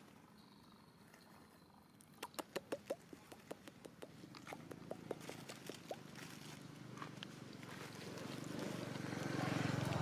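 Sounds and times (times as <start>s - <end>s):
dry leaves crackling: 4.4s - 10.0s.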